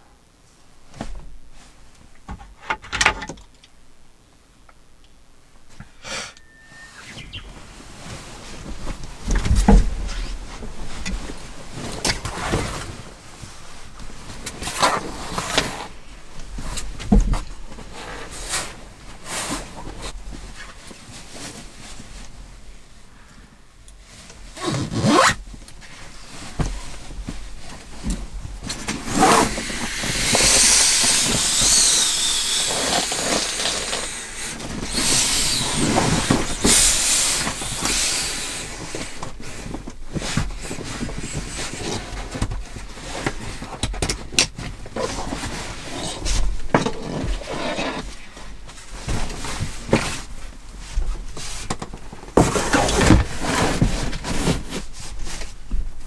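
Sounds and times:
fabric and bags rustling: 24.0 - 29.8.

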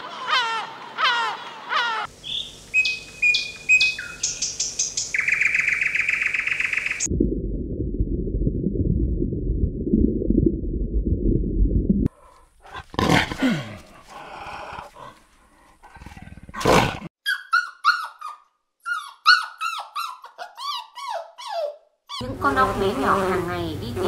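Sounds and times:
gull calling harshly: 0.0 - 2.1
small birds chirping: 1.0 - 7.1
low underwater rumble: 7.1 - 12.1.

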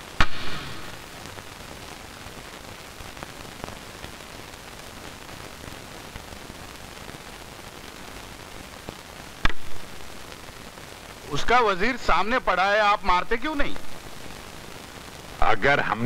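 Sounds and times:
old film soundtrack hiss: 0.0 - 16.0
sharp loud knock: 0.2 - 0.9.

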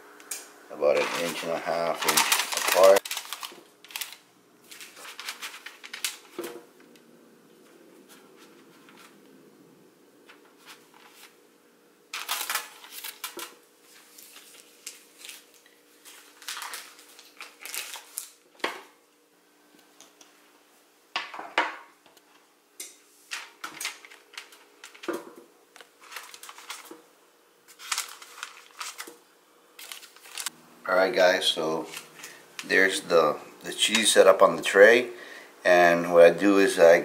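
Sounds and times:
faint steady hum: 0.0 - 37.0
parchment paper rustling: 0.8 - 7.0, 7.6 - 9.3, 10.2 - 11.4, 12.1 - 18.7, 23.3 - 27.1, 27.7 - 29.2, 29.8 - 30.5, 31.1 - 34.9.

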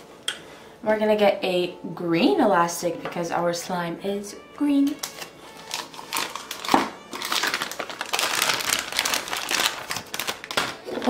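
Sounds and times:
plastic piping bag crinkling: 4.9 - 11.0.

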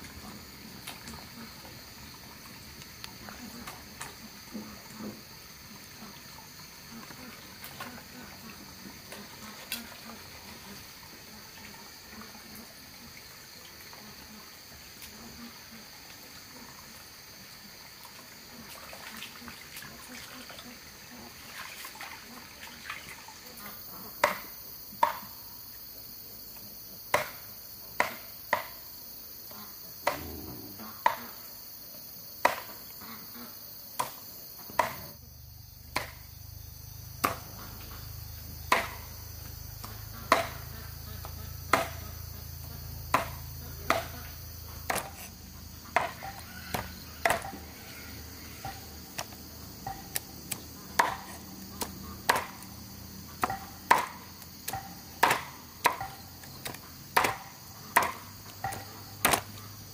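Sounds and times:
insects droning: 0.0 - 59.9
hand tool chopping blows: 43.1 - 44.2, 49.9 - 52.7, 53.4 - 59.6.

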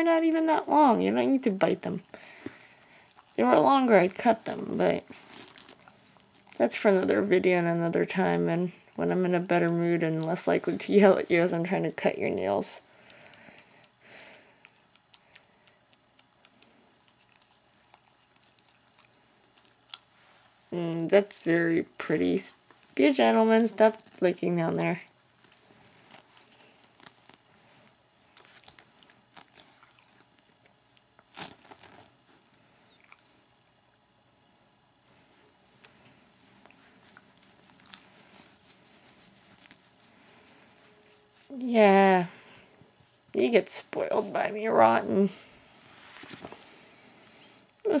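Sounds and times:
soft rustle: 0.8 - 12.8, 16.4 - 33.6, 35.0 - 47.6
dog licking and chewing: 14.6 - 20.7, 28.3 - 31.4
dog licking and nibbling: 14.6 - 20.7, 23.8 - 34.0, 35.8 - 41.4.

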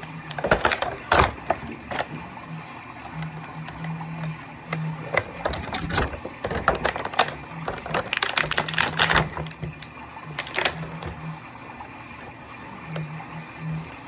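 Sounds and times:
plastic packaging crinkling: 5.0 - 11.1.

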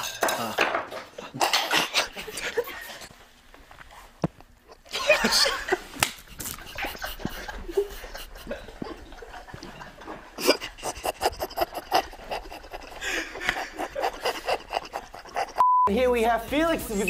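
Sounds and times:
young men laughing hard: 1.0 - 3.1, 4.7 - 15.6.

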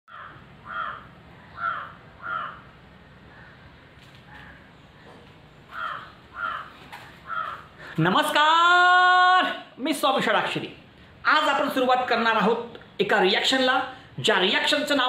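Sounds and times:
crow cawing: 0.1 - 4.7, 5.7 - 8.0.

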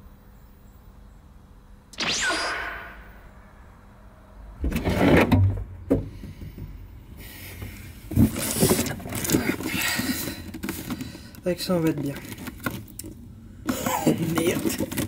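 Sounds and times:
sharp knock: 2.0 - 3.3
cardboard boxes scraping and rustling: 8.1 - 11.2, 13.7 - 15.0.

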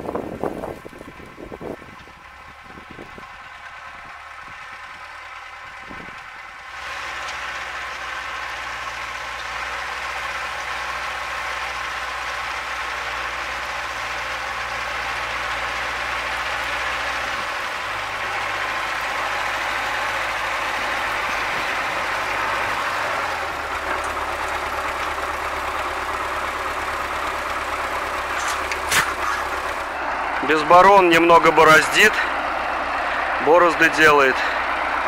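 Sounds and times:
tractor diesel engine running: 0.0 - 35.0.

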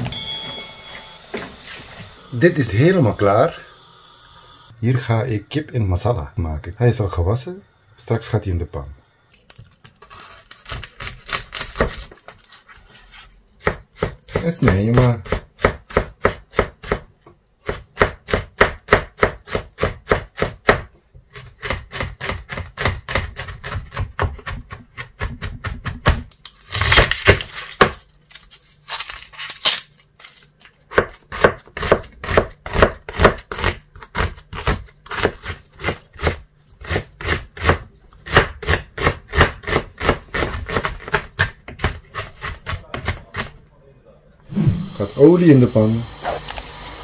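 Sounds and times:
knife chopping on plastic board: 13.6 - 26.3, 30.9 - 43.6.

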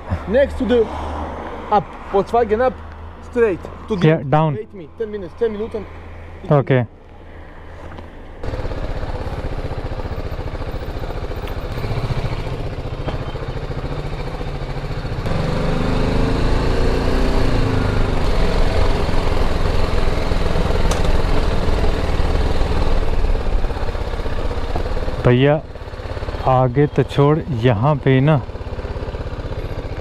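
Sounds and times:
motorcycle engine running: 8.4 - 30.0.

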